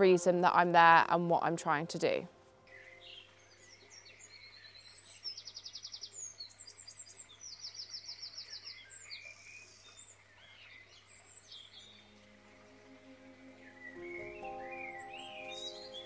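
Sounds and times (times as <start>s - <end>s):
soft music: 0.0s - 4.3s, 11.7s - 16.0s
songbird chorus: 2.6s - 16.0s.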